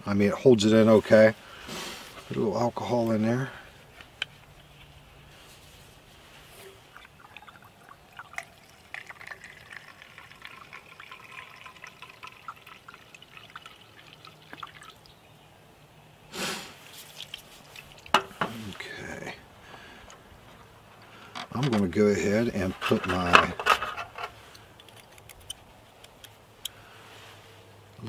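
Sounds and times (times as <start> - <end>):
liquid trickling into burner: 6.6 - 15.1
bottle rustling: 16.8 - 19.0, 20.4 - 25.5.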